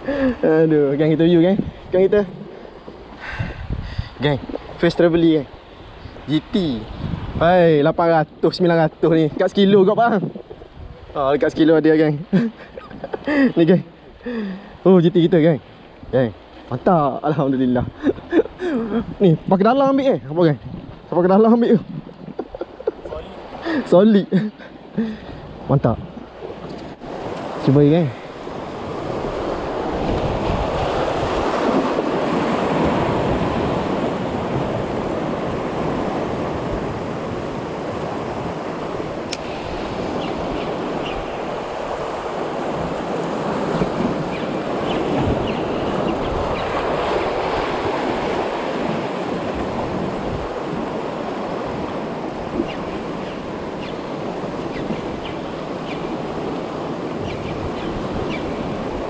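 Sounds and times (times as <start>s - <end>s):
wind buffeting microphone: 0.0s - 13.5s, 15.6s - 23.6s, 24.7s - 59.0s
sea surf: 0.0s - 59.0s
wind rushing: 3.3s - 4.6s, 5.9s - 7.8s.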